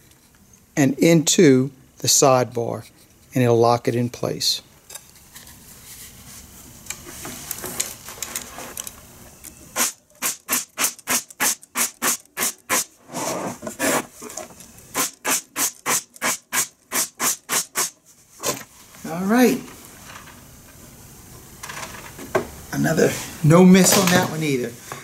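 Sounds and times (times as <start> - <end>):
pneumatic stapler firing: 9.8 - 12.9, 14.9 - 18.6.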